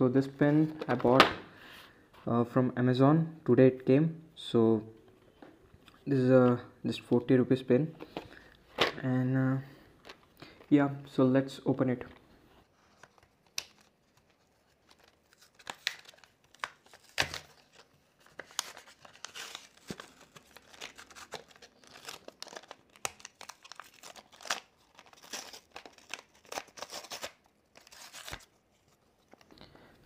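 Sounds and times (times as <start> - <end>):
plastic blister pack crackling: 13.0 - 28.5
card backing ripping: 13.1 - 28.6.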